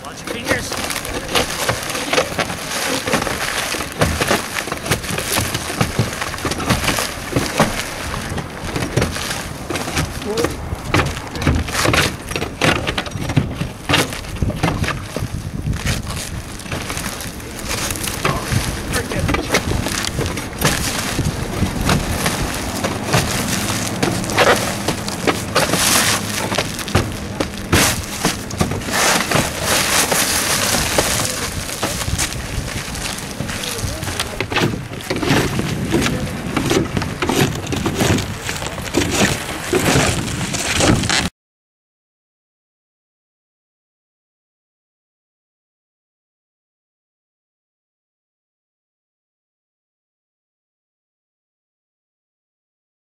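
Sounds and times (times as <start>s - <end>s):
low rumbling background noise: 0.0s - 41.3s
shovels scraping roofing: 0.0s - 41.3s
wind buffeting microphone: 0.1s - 41.3s
roofing sheets tearing: 0.2s - 41.3s.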